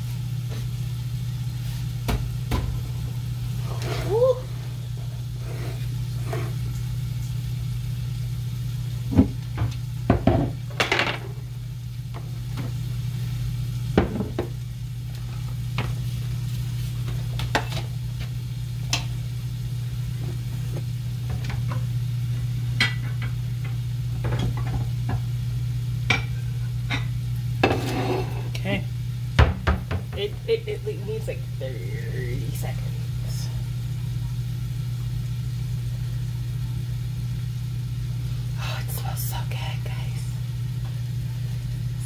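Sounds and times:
steady low hum: 0.0s - 42.0s
pans and utensils clinking: 26.1s - 28.6s.

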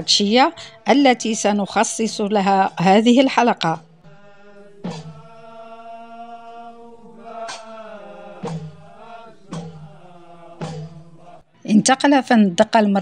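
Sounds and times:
men chanting together: 4.0s - 11.6s
sharp percussive strikes: 4.8s - 11.4s.

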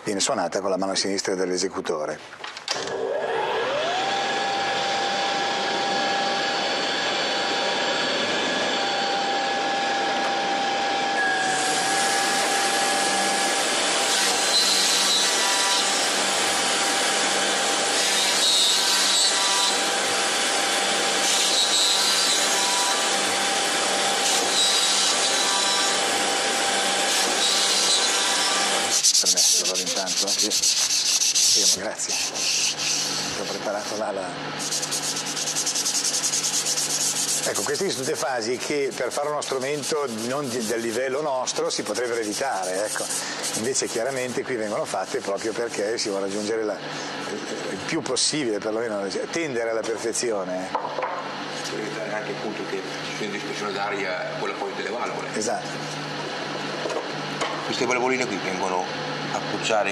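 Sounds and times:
router cutting wood: 2.7s - 50.4s
hand sanding wooden board: 28.9s - 46.6s.

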